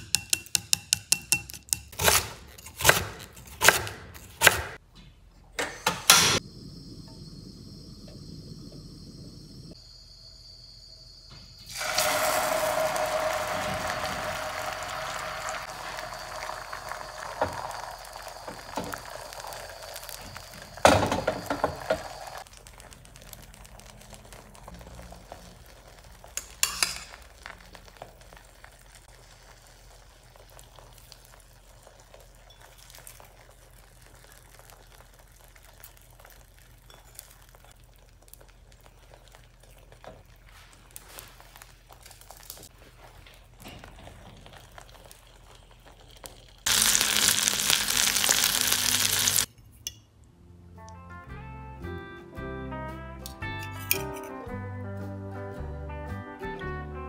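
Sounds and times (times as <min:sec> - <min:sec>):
egg sizzling in a frying pan: 0:11.6 - 0:42.8, 0:43.6 - 0:49.5.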